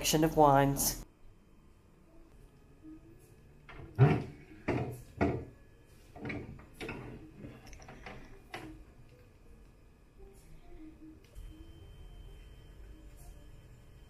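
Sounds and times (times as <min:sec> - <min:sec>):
rack and bottles rattling: 0:03.7 - 0:05.5, 0:06.2 - 0:08.7.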